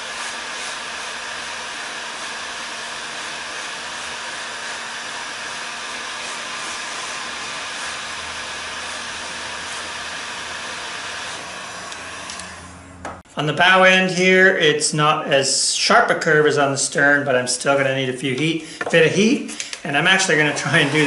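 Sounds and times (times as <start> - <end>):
heat gun blowing air: 0.0 - 12.8, 18.6 - 21.0.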